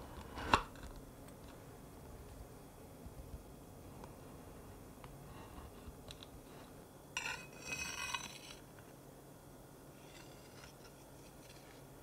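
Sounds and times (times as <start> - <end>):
metal utensil scraping: 7.2 - 8.6, 10.0 - 11.8.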